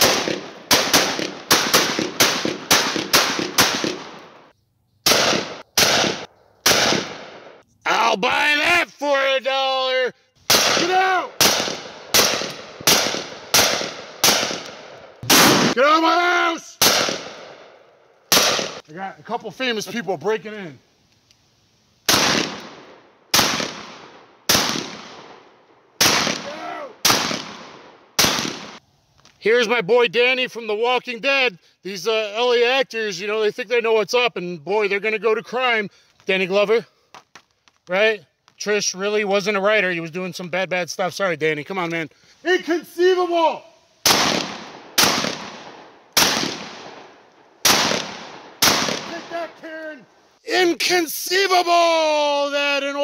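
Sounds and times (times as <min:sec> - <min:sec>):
shotgun shots with echo: 0:00.0 - 0:04.4, 0:05.0 - 0:07.6, 0:10.5 - 0:15.8, 0:16.8 - 0:18.8, 0:22.1 - 0:25.4, 0:26.0 - 0:28.8, 0:44.0 - 0:49.3.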